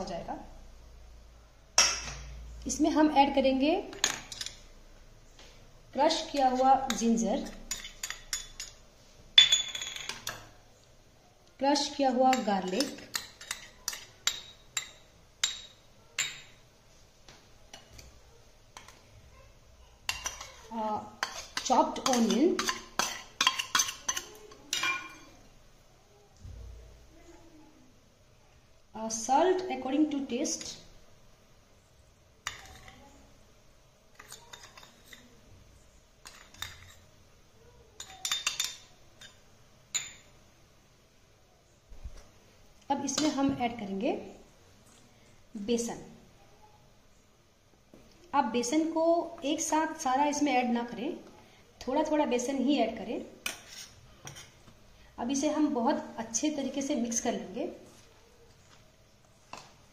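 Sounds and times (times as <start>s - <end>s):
spoon clinking on steel bowl: 9.4s - 10.5s, 12.3s - 16.6s, 21.2s - 25.3s, 38.0s - 40.3s.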